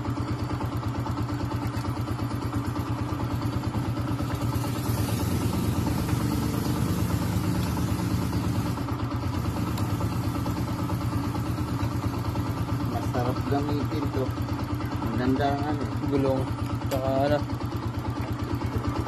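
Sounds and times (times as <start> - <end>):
motorcycle engine idling: 0.0 - 19.0
hiss: 4.3 - 11.5.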